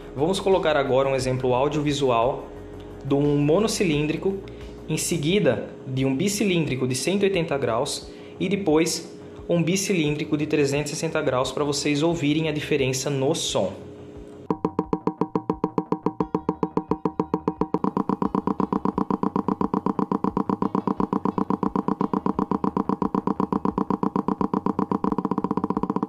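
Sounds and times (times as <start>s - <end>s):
single-cylinder motorcycle idling: 17.5s - 26.0s
parallel twin motorcycle idling: 17.8s - 26.0s.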